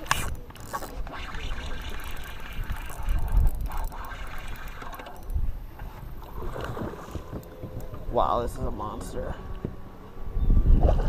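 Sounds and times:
spinning reel cranking: 0.0s - 5.7s
wind rumbling on microphone: 0.0s - 11.0s.

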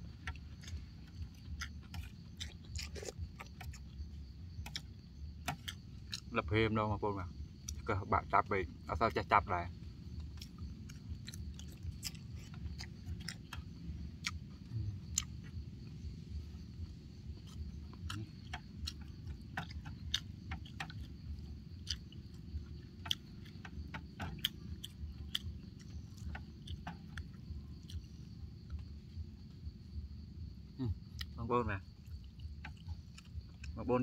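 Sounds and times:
person chewing noodle soup: 0.0s - 6.3s, 9.9s - 29.2s, 30.5s - 33.8s
mouth clicks: 17.4s - 28.8s.

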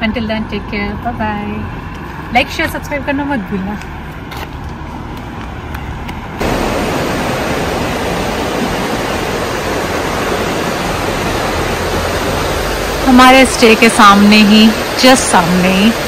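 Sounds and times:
river rushing: 6.4s - 16.0s.

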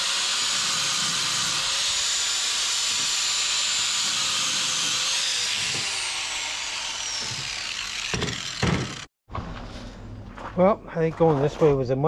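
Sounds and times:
angle grinder winding down: 0.0s - 9.1s
grinder knocking on table: 8.1s - 9.1s.

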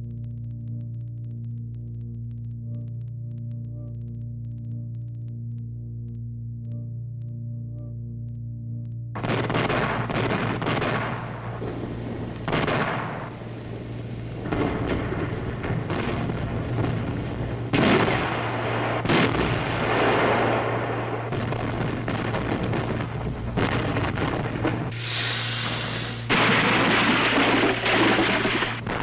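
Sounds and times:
low film hum: 0.0s - 29.0s
gunfire booms and shell bursts: 9.2s - 25.1s, 26.0s - 29.0s.

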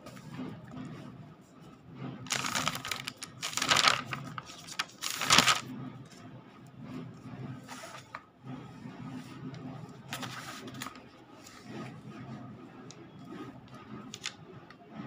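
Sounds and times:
notebook pages turning: 2.3s - 5.7s, 10.1s - 11.6s, 14.1s - 14.4s.

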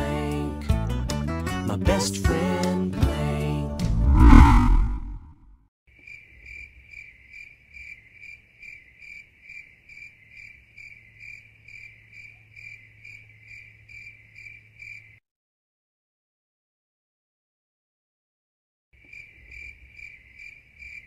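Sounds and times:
cricket chirping: 6.0s - 15.2s, 19.0s - 21.0s.

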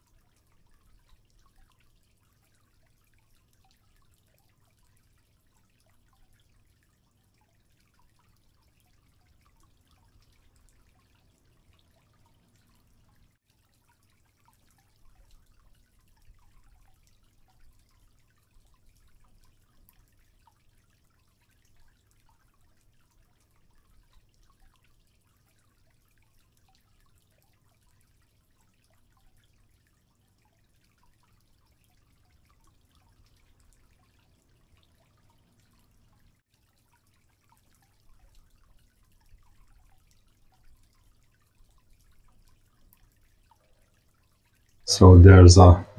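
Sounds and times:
aquarium water dripping: 0.0s - 45.8s
low steady hum: 44.9s - 45.9s.

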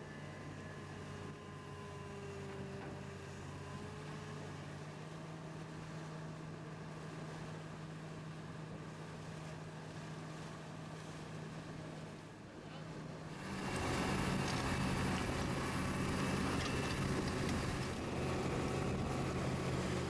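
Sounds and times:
excavator diesel engine running: 13.2s - 20.0s.

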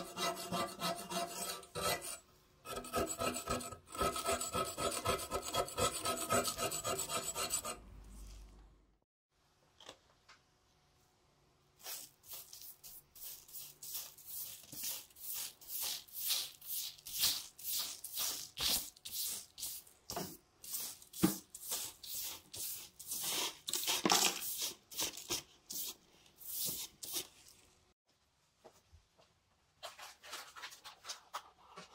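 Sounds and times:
brush sweeping hard surface: 11.8s - 27.6s.

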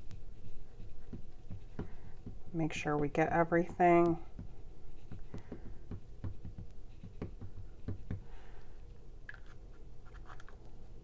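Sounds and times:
ink pad tapping on stamp: 5.1s - 8.3s.

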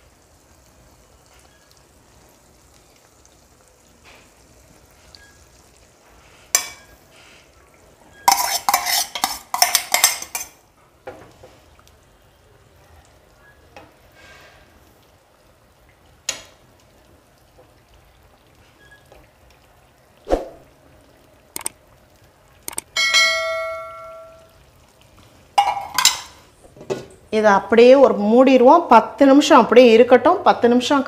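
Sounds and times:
faint sizzle: 0.0s - 31.0s
spoon scraping steel bowl: 8.1s - 10.6s.

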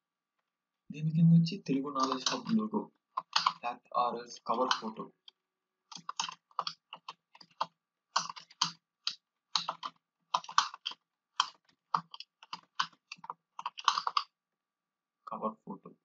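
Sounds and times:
typing on computer keyboard: 2.0s - 2.6s, 3.2s - 3.6s, 4.5s - 5.0s, 5.9s - 14.2s.

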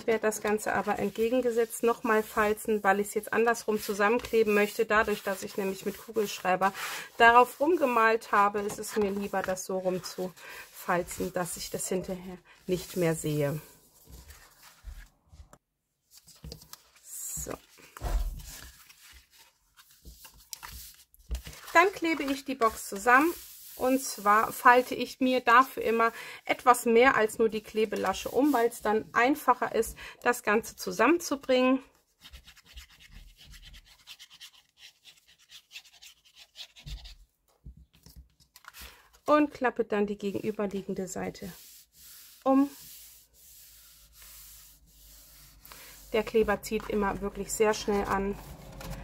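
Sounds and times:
card rustling: 14.0s - 23.1s.

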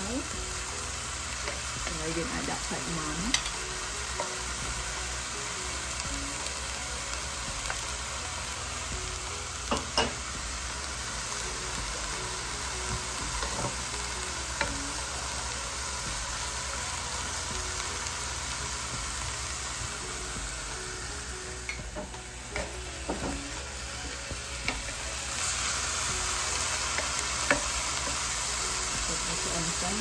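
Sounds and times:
food sizzling in hot oil: 0.0s - 30.0s.

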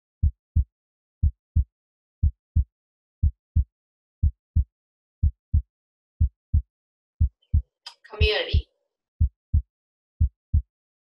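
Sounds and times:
heartbeat thumps: 3.6s - 5.6s, 6.2s - 6.6s, 9.2s - 10.7s.

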